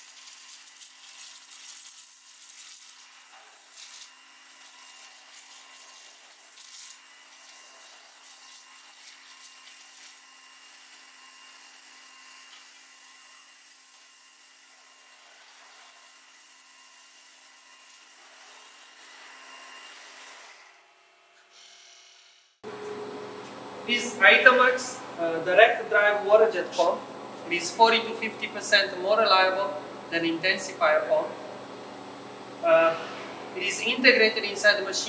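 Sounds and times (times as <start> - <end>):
waterjet hissing: 32.4 - 35.0.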